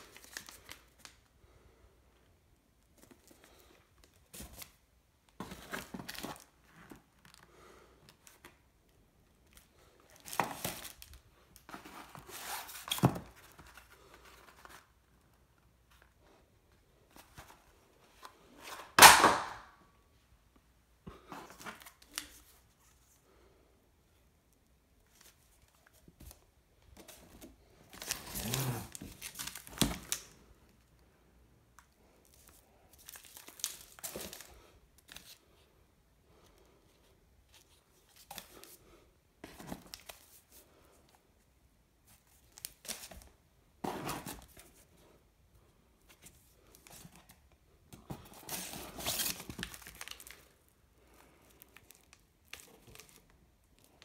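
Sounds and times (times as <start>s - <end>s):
plastic and cardboard crinkling: 0.0s - 1.3s, 2.8s - 8.6s, 9.4s - 19.5s, 25.0s - 30.9s, 32.0s - 35.4s, 46.0s - 54.0s
loud rustle or tear: 28.0s - 29.7s.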